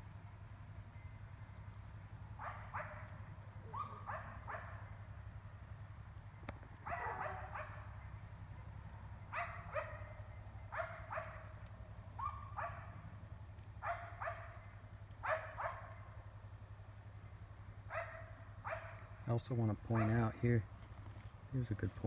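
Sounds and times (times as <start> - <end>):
low hum: 0.0 - 22.0
distant dogs barking: 2.3 - 5.1, 6.8 - 16.2, 17.8 - 20.7.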